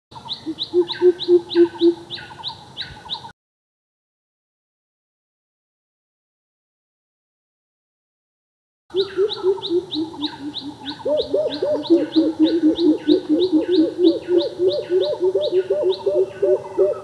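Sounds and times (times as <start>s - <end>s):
low hooting bird calls: 0.2s - 3.3s, 8.9s - 17.0s
high falling bird chirp: 8.9s - 17.0s.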